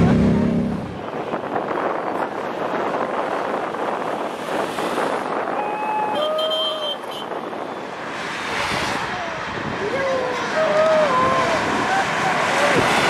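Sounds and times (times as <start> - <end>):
armoured vehicles road noise: 0.0 - 13.0
onlookers shouting: 5.5 - 7.0, 8.9 - 13.0
wind buffeting microphone: 7.2 - 13.0.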